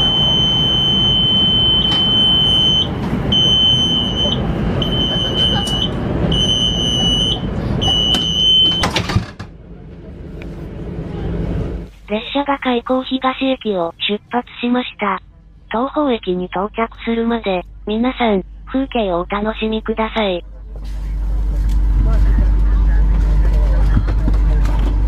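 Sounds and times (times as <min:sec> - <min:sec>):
electronic warning beeps: 0:00.0 - 0:08.9.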